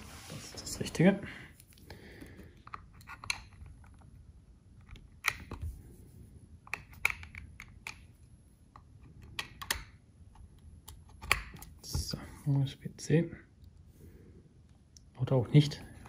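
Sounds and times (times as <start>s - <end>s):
cable plugs clicking and knocking: 1.6s - 5.8s, 6.6s - 12.2s.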